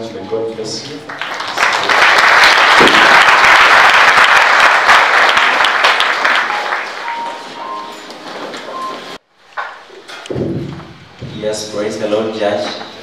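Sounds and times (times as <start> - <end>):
crowd clapping: 1.0 - 8.8.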